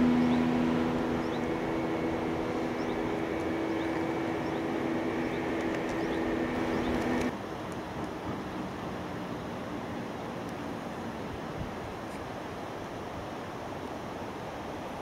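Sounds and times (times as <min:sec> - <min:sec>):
even tones: 0:00.0 - 0:07.3
rushing haze: 0:00.0 - 0:07.3
engine humming: 0:00.0 - 0:07.4.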